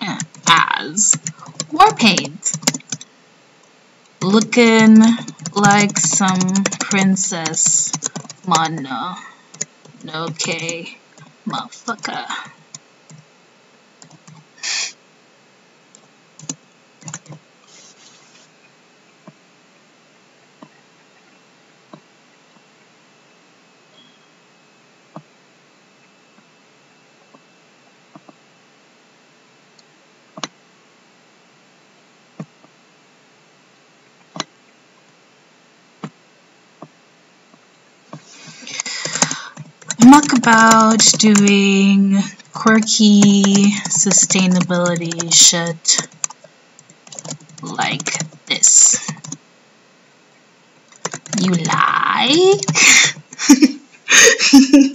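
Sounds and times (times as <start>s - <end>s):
faint steady hiss: 0.0s - 54.9s
computer mouse clicking: 0.2s - 3.1s, 4.2s - 8.8s, 9.5s - 11.3s, 14.0s - 14.5s, 15.9s - 17.4s, 38.2s - 41.6s, 42.4s - 49.4s, 50.9s - 51.8s, 52.5s - 53.4s
laptop keystrokes: 0.2s - 3.1s, 4.2s - 8.8s, 9.5s - 10.8s, 16.0s - 17.4s, 38.7s - 41.6s, 42.8s - 45.4s, 46.0s - 48.4s, 50.9s - 51.8s
breathy puff: 14.6s - 15.0s.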